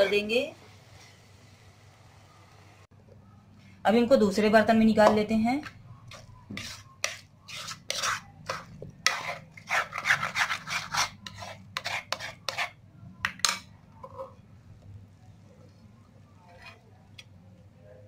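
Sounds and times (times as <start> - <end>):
spatula scraping metal pan: 5.6 - 12.8, 16.4 - 16.9.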